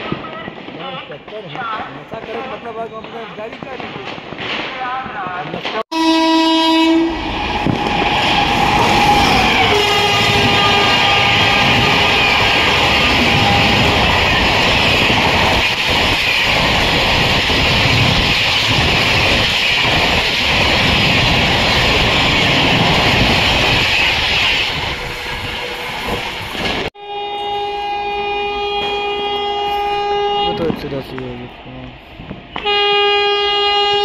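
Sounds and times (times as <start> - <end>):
train horn steady note: 5.9 - 15.1, 24.9 - 31.1, 32.0 - 34.0
train horn: 5.9 - 15.7, 24.8 - 31.0, 32.5 - 34.0
train wheels rushing on rails: 6.8 - 34.0.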